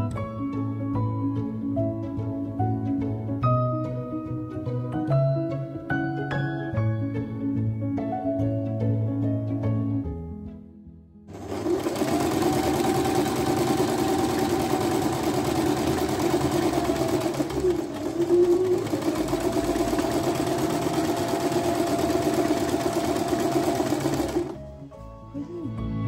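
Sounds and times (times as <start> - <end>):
sewing machine running: 11.3 - 24.6.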